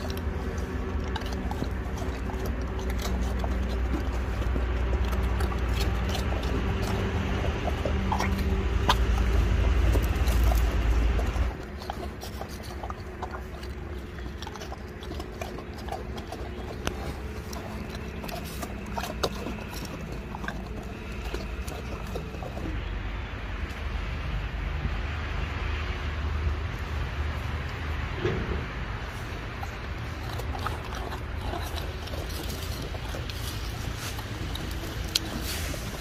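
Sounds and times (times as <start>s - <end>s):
teeth clicking on biscuit: 0.0s - 22.8s
bears crunching biscuits: 0.0s - 24.1s, 29.0s - 36.0s.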